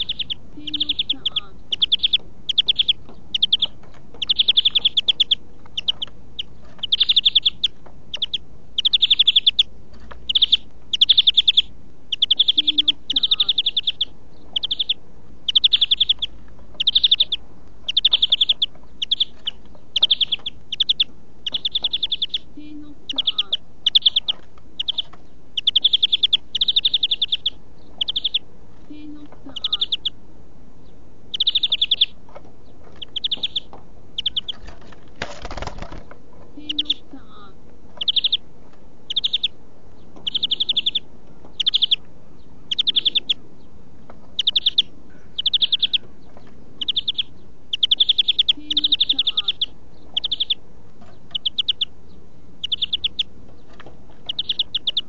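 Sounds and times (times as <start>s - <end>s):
bird singing trilled phrases: 0.0s - 30.2s, 30.8s - 55.0s.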